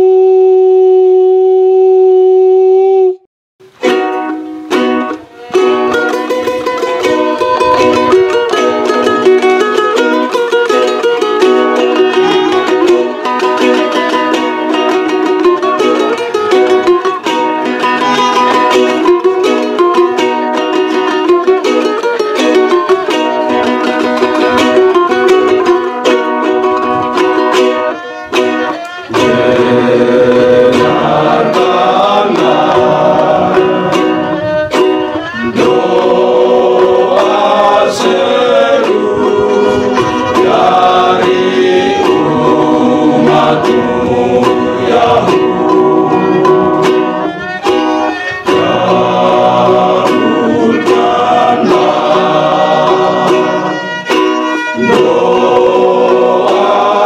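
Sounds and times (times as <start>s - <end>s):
strummed ukuleles: 3.6s - 57.0s
bowed violin: 25.4s - 57.0s
men's choir singing a hymn: 28.7s - 34.5s, 35.3s - 54.1s, 54.7s - 57.0s.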